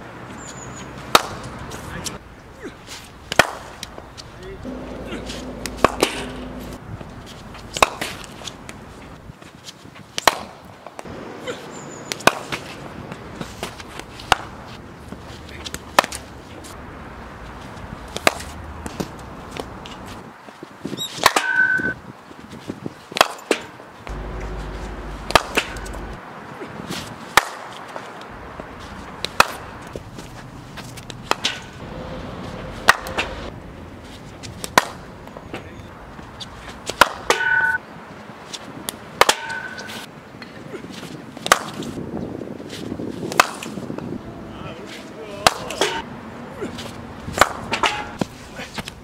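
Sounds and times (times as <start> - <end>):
short ringing tone: 4.7 - 6.8
cricket bat striking balls: 25.2 - 26.2.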